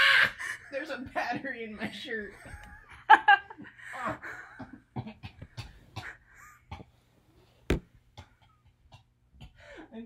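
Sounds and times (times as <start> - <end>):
sharp knock: 7.7 - 7.9
camera handling taps and rustles: 7.7 - 8.0.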